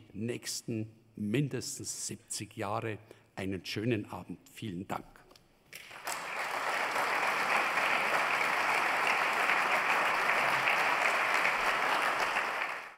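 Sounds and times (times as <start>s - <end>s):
audience applauding: 5.8s - 12.9s.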